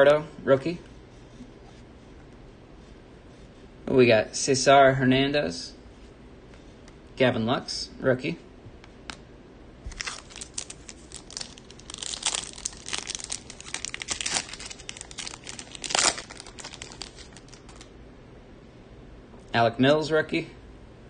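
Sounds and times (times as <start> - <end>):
foil wrapper crinkling: 9.9 - 17.9.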